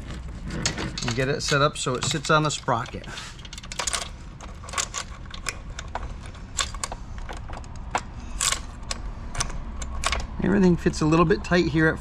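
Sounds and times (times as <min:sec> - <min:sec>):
saw chain clicking and rattling: 0:00.0 - 0:10.5.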